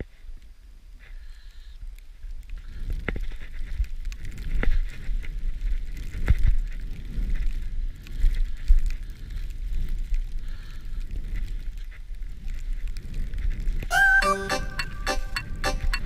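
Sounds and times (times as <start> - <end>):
wind rumble on microphone: 0.0 - 13.9
skis running through snow: 2.4 - 13.9.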